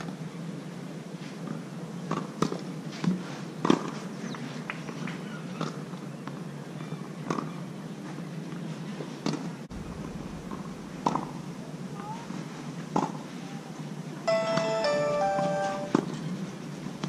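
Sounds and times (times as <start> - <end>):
steady low hum: 9.7 - 12.1.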